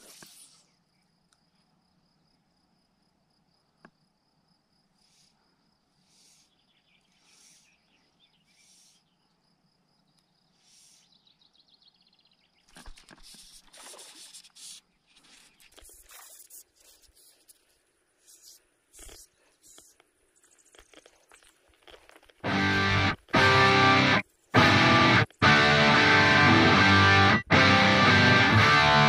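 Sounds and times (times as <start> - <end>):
steady high insect whine: 0.0 - 27.3
insects chirping: 0.0 - 29.0
crackling and rustling: 12.7 - 25.4.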